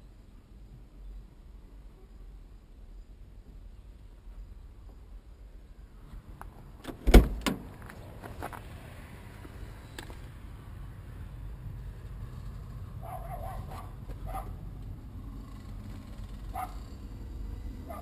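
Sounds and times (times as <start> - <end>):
car door latch clunk: 6.8 - 7.7.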